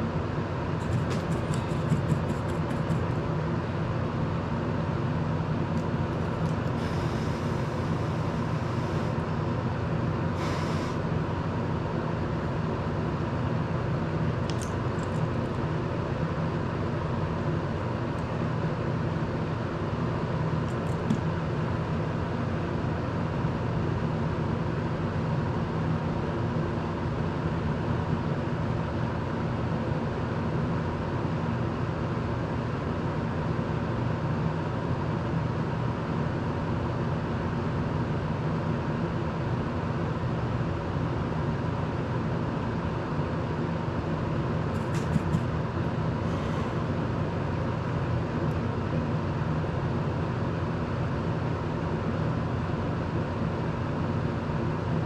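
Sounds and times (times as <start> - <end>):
electric fan humming: 0.0 - 22.8, 39.9 - 55.0.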